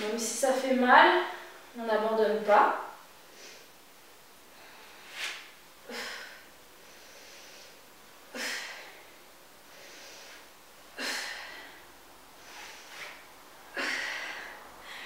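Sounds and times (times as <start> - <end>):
soft inhales: 4.5 - 7.8, 8.4 - 15.0
woman exhaling forcefully: 4.6 - 7.7, 8.3 - 9.1, 11.0 - 15.0.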